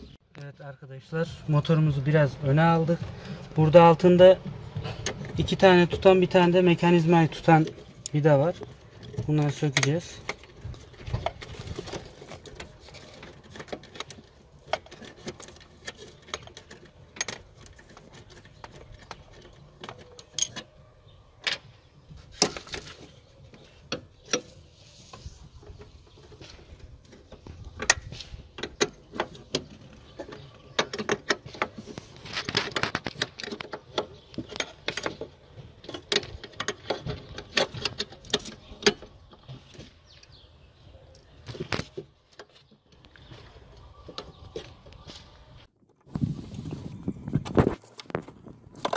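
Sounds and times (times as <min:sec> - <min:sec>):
spanner clicking on metal bolts: 0:12.4 - 0:20.7.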